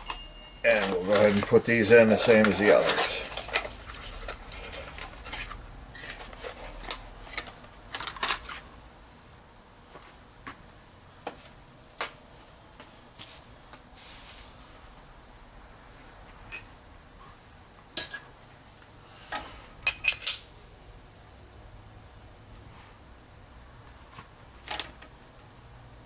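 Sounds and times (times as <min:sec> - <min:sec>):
sharp metallic clinks: 0:00.0 - 0:00.8.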